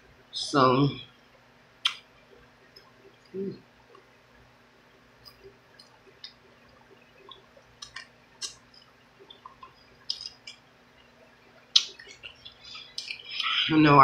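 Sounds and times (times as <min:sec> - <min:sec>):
chewing with crunches: 0:05.2 - 0:10.6, 0:11.7 - 0:13.6.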